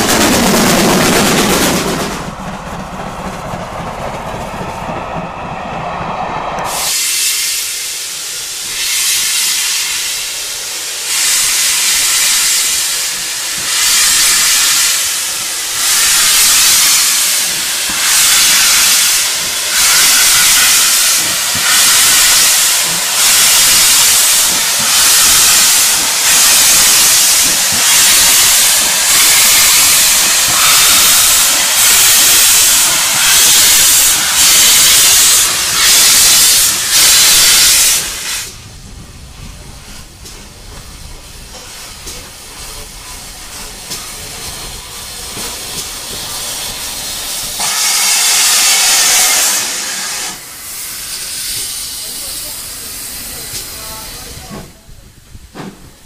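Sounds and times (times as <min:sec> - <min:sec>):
steam locomotive exhaust beats: 0:00.0 - 0:56.0
steam locomotive hiss and rumble: 0:00.0 - 0:56.0
steam blowing from drain cocks: 0:06.7 - 0:38.6, 0:43.6 - 0:54.2.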